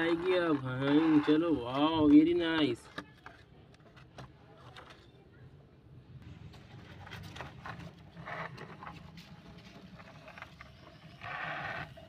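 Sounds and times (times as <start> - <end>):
toy wheels rolling on wood: 0.0 - 5.1, 6.7 - 12.0.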